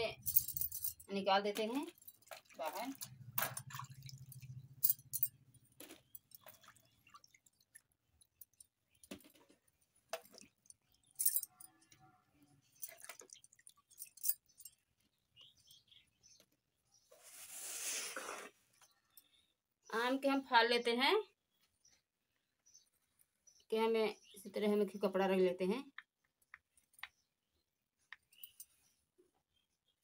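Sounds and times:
water splashing: 0:02.1 - 0:04.6.

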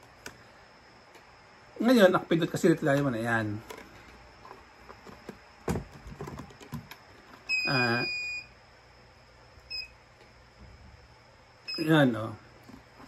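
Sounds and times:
high electronic beep: 0:07.5 - 0:08.5, 0:11.7 - 0:11.9.

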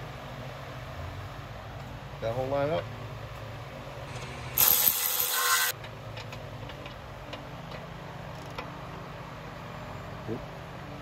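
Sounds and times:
cordless ratchet whirring: 0:04.1 - 0:05.8.

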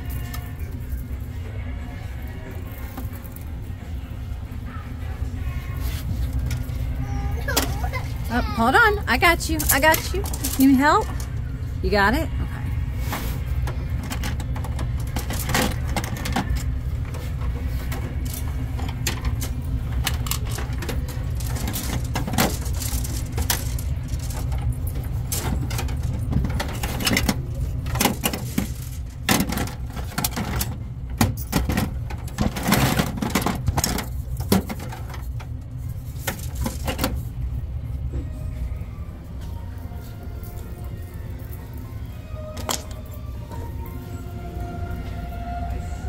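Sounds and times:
steady low hum: 0:00.0 - 0:46.0
plastic toys clacking: 0:09.4 - 0:11.4, 0:13.6 - 0:17.3, 0:17.9 - 0:37.3.

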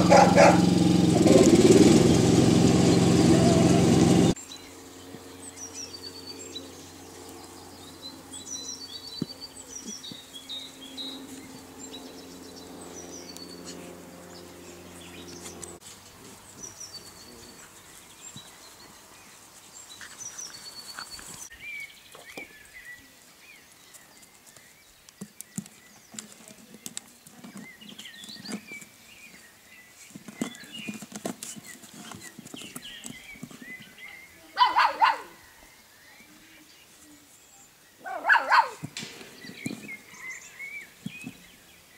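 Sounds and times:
puppy paws on gravel: 0:00.0 - 0:01.6, 0:13.3 - 0:34.3, 0:38.6 - 0:41.7
low engine hum: 0:00.0 - 0:17.6
small birds chirping: 0:00.0 - 0:41.9.

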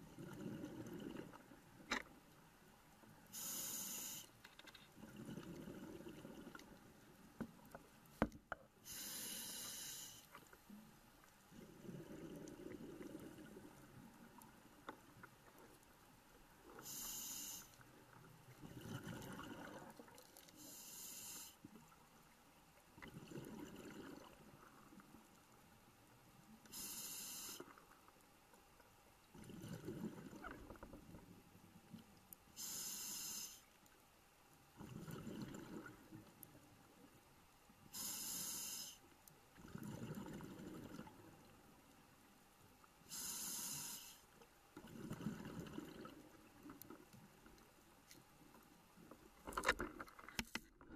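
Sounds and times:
regulator air hiss: 0:03.4 - 0:04.3, 0:08.8 - 0:10.3, 0:16.8 - 0:17.8, 0:20.6 - 0:21.6, 0:26.7 - 0:27.6, 0:32.6 - 0:33.7, 0:37.9 - 0:39.0, 0:43.1 - 0:44.3.

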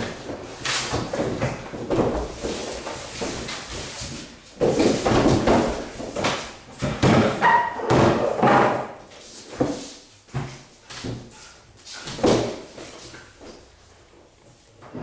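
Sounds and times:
wooden chair clattering on tiles: 0:00.0 - 0:13.6
wooden door banging: 0:05.0 - 0:09.0.

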